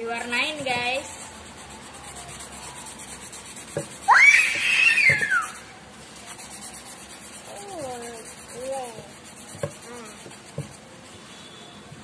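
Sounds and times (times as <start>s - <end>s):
marker scratching on cardboard: 0.1s - 10.9s
toddler squealing: 4.1s - 5.6s.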